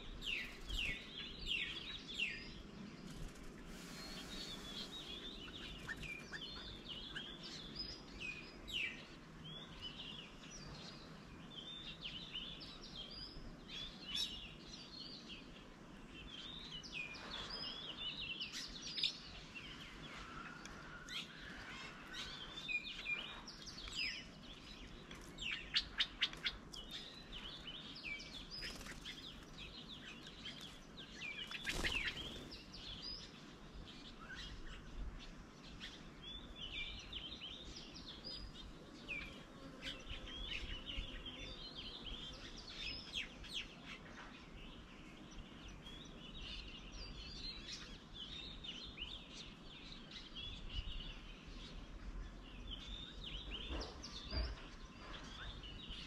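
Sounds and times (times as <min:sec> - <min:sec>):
birds calling and chirping: 0:00.0 - 0:56.0
outdoor background hiss: 0:00.0 - 0:56.0.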